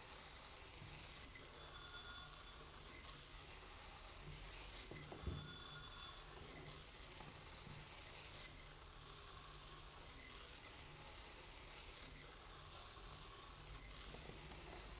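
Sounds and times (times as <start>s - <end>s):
ringing tones from bowls: 1.3s - 3.2s, 4.9s - 6.8s.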